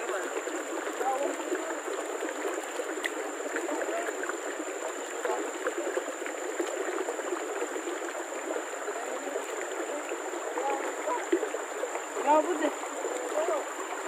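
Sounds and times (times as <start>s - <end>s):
river water gurgling: 0.0s - 14.0s.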